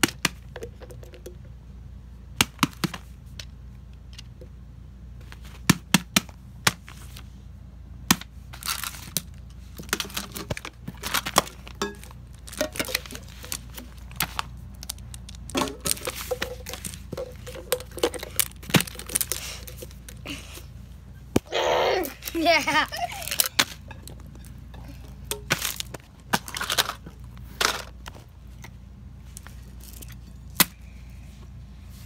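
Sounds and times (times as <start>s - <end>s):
plastic toys clicking and knocking: 8.1s - 20.6s, 21.4s - 28.2s
metal tins knocking: 11.8s - 13.9s, 15.5s - 19.8s.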